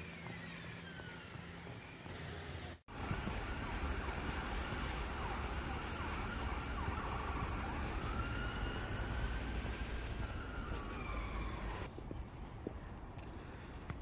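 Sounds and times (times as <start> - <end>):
low rumble of traffic: 0.1 - 14.0
siren wailing: 2.9 - 11.9.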